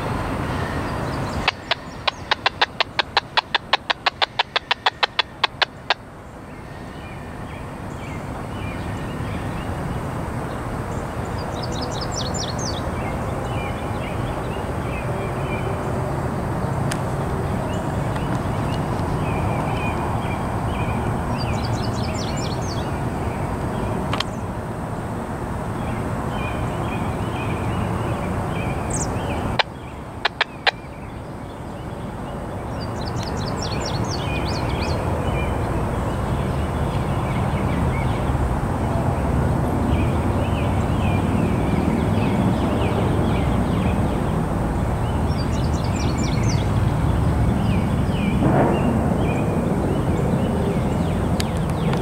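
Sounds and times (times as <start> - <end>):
songbirds chirping and trilling: 0.0 - 24.8, 25.6 - 52.0
low rushing background noise: 0.0 - 52.0
sharp clicks: 1.4 - 6.0, 29.6 - 30.8.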